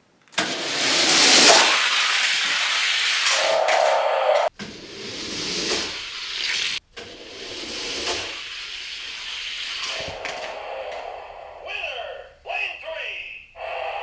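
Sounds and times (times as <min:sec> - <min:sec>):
toy cars rolling down plastic track: 0:00.4 - 0:04.5.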